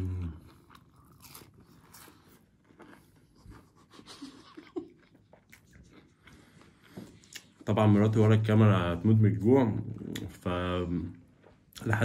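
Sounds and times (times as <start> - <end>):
person chewing: 0.0 - 7.6.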